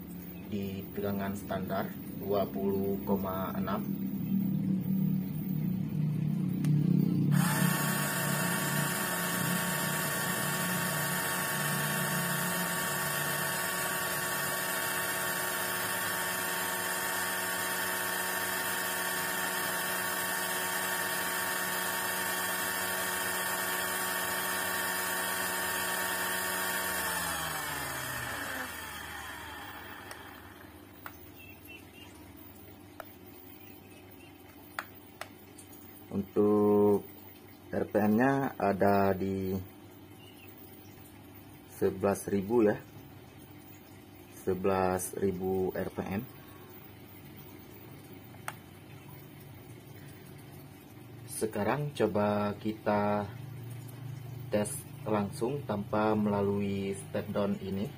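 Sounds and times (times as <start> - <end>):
electric motor whining: 6.3 - 31.0.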